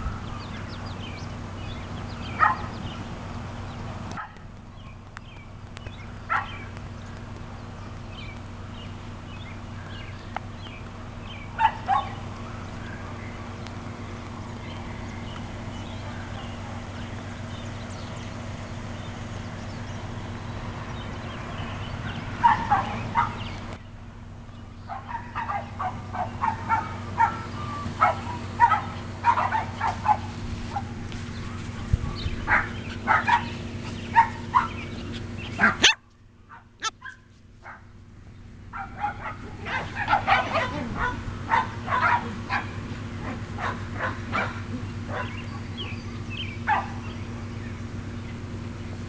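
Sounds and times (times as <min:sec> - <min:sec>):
puppies yipping and barking: 0:00.0 - 0:03.0, 0:06.0 - 0:07.2, 0:11.2 - 0:19.6, 0:21.7 - 0:23.8, 0:24.8 - 0:37.9, 0:38.7 - 0:48.0
steady low hum: 0:00.0 - 0:49.0.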